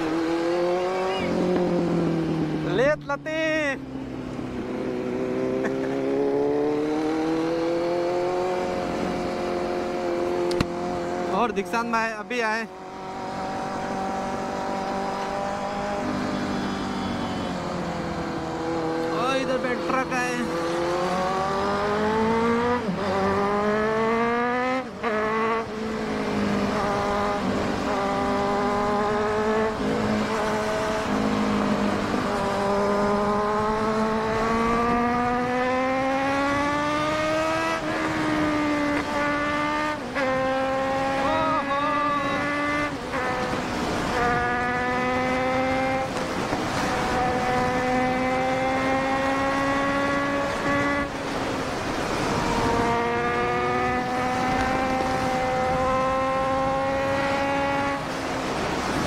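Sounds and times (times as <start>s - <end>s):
motorcycle engine at high speed: 0.0s - 59.0s.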